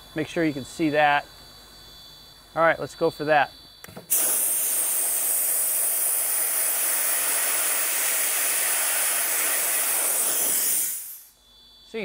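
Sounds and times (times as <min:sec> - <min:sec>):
dry ice blasting hiss: 0:04.0 - 0:11.4.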